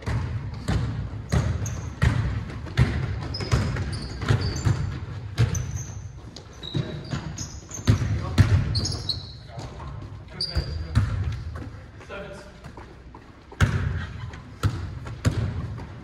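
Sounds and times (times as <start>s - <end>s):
basketball dribbling on hardwood: 0.0s - 5.8s, 13.5s - 16.0s
sneaker squeaks: 0.5s - 15.9s.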